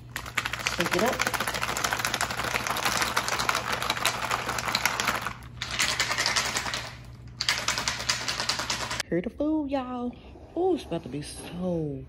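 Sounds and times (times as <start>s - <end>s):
plastic cup rattling when shaken: 0.0s - 9.0s.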